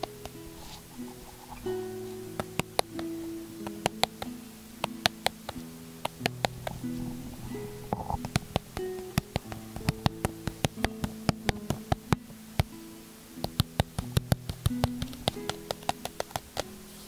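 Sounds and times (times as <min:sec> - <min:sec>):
soft background music: 0:00.0 - 0:17.0
fingertips tapping cardboard box: 0:02.4 - 0:06.9, 0:07.9 - 0:12.8, 0:13.4 - 0:16.7.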